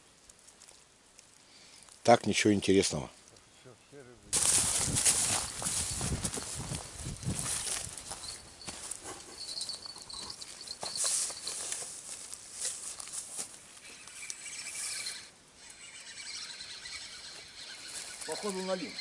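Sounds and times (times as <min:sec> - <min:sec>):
footsteps crunching through dry grass: 0:04.3 - 0:14.2, 0:17.8 - 0:18.8.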